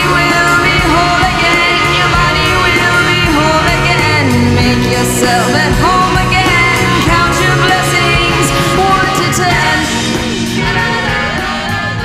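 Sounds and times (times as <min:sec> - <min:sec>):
rock song with singing: 0:00.0 - 0:12.0.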